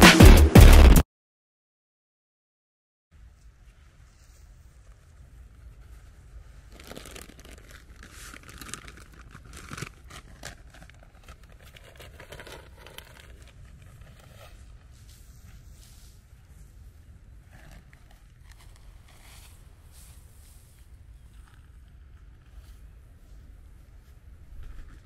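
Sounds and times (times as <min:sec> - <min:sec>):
plastic sack crinkling: 0:06.4 - 0:14.9.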